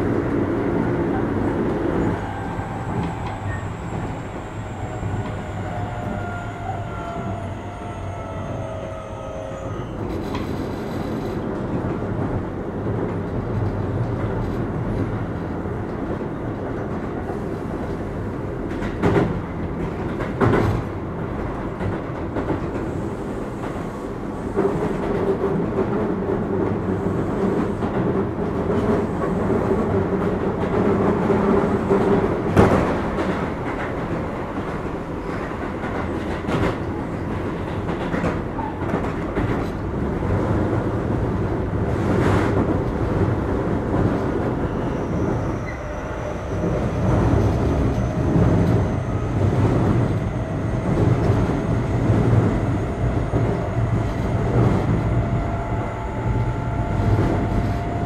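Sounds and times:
rail joint clacks: 0:00.0 - 0:58.0
train wheels rumbling on rail: 0:00.0 - 0:58.0.

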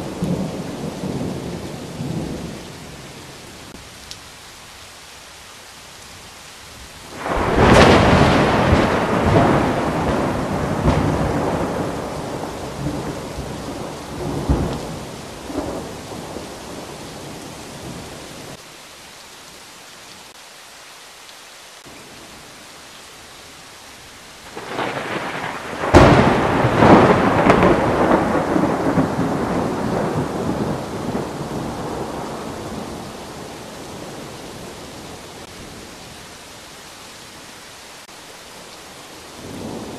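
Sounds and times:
steady rain: 0:00.0 - 0:39.9
thunder rumbling: 0:07.1 - 0:18.1, 0:24.5 - 0:35.5.

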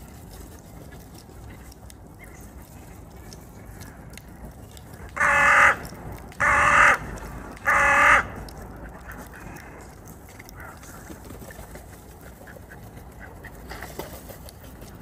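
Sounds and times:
crow cawing: 0:05.2 - 0:08.4.

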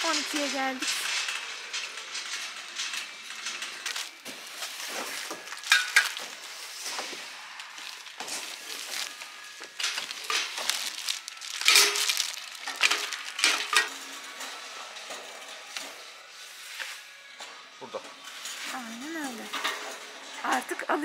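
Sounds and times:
plastic wrapping rustling: 0:00.0 - 0:21.0
metal knocks and clinks: 0:07.6 - 0:15.4.

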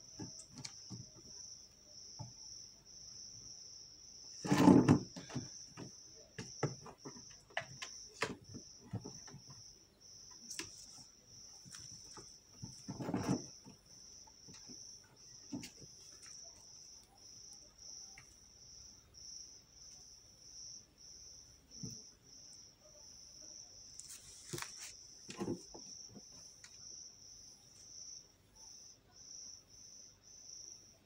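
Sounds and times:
cricket chirping: 0:00.0 - 0:31.0.

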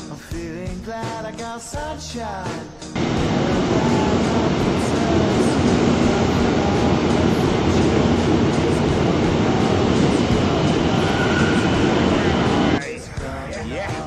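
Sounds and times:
train rumbling past: 0:03.0 - 0:12.9.

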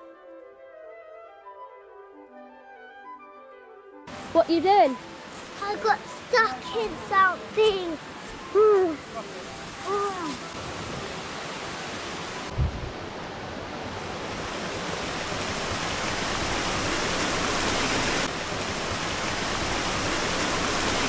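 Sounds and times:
stream running: 0:04.1 - 0:21.0
low thump: 0:12.5 - 0:12.9.

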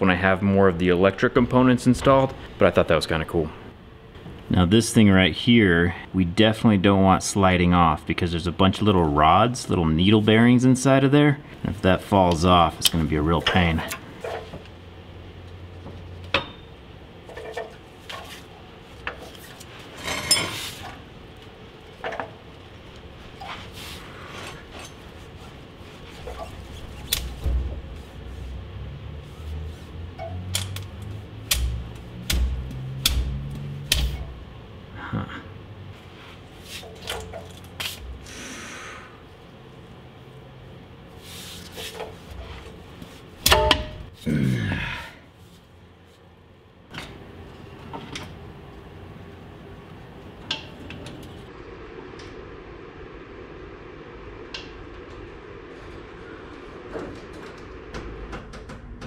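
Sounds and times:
metal sliding scrape: 0:19.3 - 0:20.9, 0:23.3 - 0:30.4, 0:41.2 - 0:42.9.

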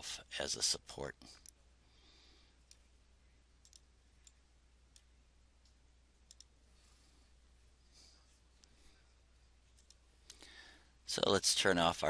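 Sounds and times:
low electrical hum: 0:00.0 - 0:12.0
computer mouse clicks: 0:03.6 - 0:06.6, 0:09.7 - 0:10.4.

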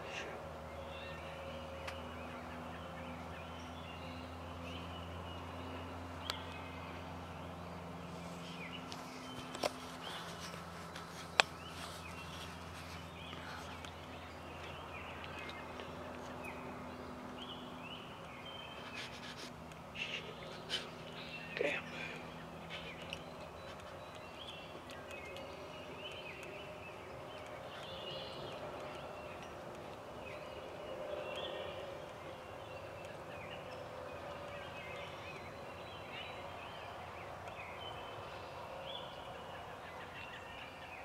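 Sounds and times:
steady low hum: 0:00.0 - 0:41.0
faint bird calls: 0:08.1 - 0:26.8.

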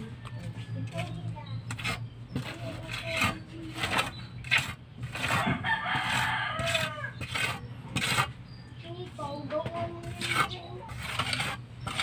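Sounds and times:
trowel scraping mortar: 0:00.6 - 0:08.4, 0:09.6 - 0:12.0
rooster crowing: 0:05.3 - 0:07.2.

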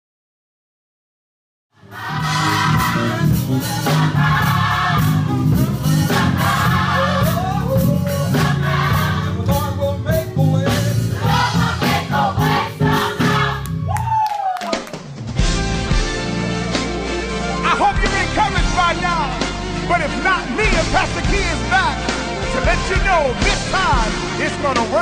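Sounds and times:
congregation singing worship music: 0:01.8 - 0:13.8
band with bass guitar: 0:01.9 - 0:14.2, 0:14.9 - 0:25.0.

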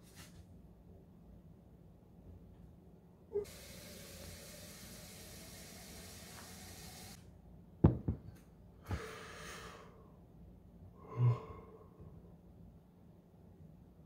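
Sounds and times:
kitchen tap running: 0:03.4 - 0:07.2.

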